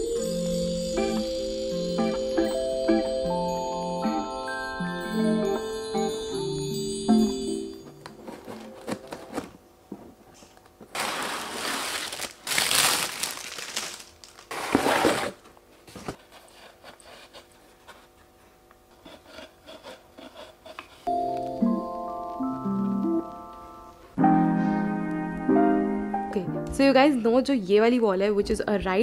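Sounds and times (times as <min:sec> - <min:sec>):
cardboard scraping and rustling: 0:08.1 - 0:09.6, 0:10.9 - 0:13.9, 0:14.5 - 0:18.2
scissors cutting cardboard: 0:16.1 - 0:18.2, 0:18.9 - 0:21.1.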